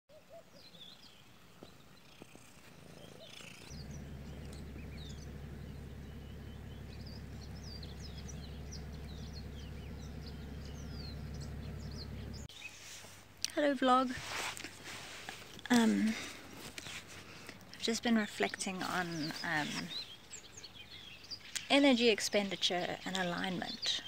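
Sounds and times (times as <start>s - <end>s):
birds chirping and twittering: 0.1s - 12.9s, 15.4s - 24.0s
steady low rumble: 3.7s - 12.5s.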